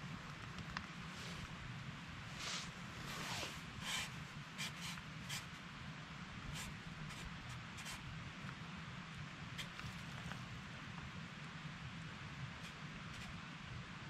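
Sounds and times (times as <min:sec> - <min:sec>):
faint scratching and rustling: 0:00.1 - 0:01.6, 0:02.2 - 0:05.6, 0:09.6 - 0:10.6.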